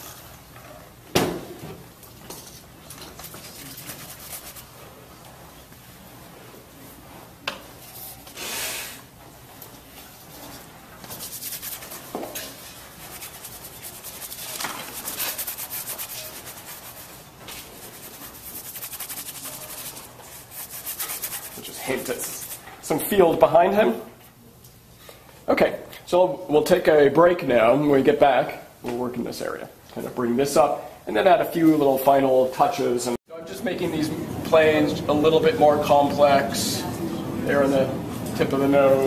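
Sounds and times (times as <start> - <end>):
paintbrush scrubbing canvas: 3.1 - 4.9, 10.0 - 22.6.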